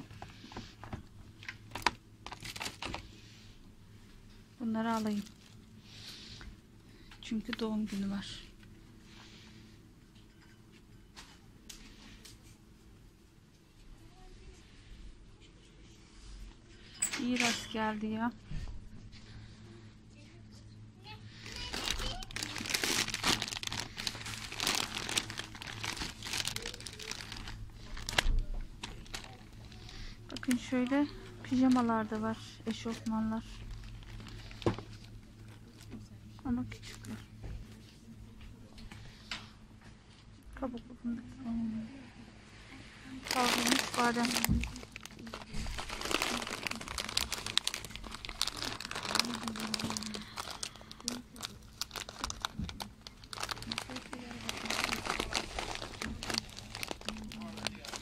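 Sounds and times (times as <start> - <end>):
cellophane crinkling: 0.0 - 3.2, 4.6 - 5.8, 21.4 - 37.3, 43.2 - 58.0.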